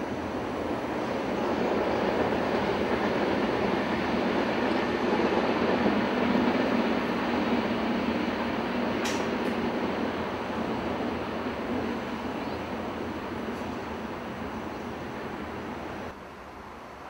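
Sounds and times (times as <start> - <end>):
train rolling rumble: 0.0 - 17.0.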